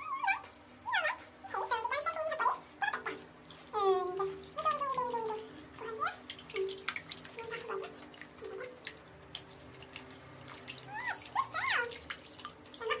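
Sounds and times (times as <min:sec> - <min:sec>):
water splashing in plastic basin: 0:03.8 - 0:13.0.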